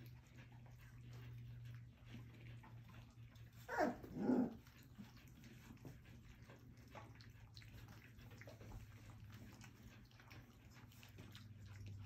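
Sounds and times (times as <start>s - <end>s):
puppies lapping food: 0.0s - 12.0s
puppy whimper: 3.4s - 4.9s.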